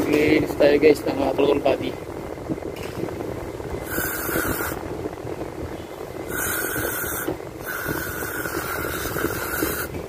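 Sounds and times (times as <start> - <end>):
aerosol spray hissing: 3.9 - 4.8.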